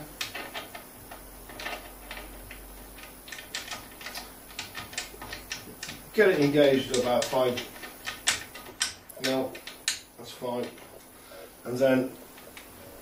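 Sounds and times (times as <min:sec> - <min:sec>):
metal spacer ticking on stud: 0:00.2 - 0:10.8.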